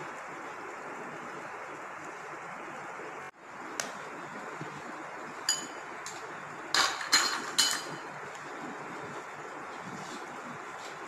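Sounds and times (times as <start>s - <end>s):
utensil clinking against glass: 5.5s - 5.8s, 6.8s - 8.1s.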